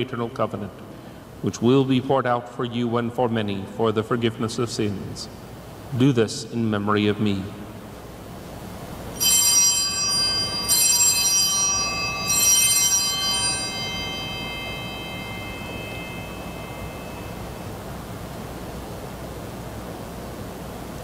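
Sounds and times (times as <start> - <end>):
altar bell ringing: 9.1 - 18.3.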